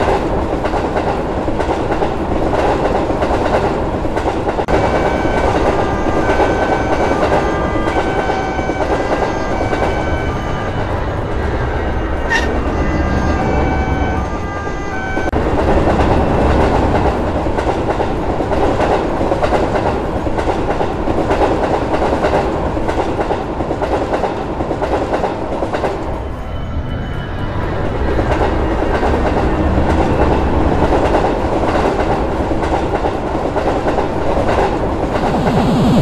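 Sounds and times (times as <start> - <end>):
clickety-clack of rail joints: 0.0 - 35.2
train wheels rumbling on rails: 0.0 - 36.0.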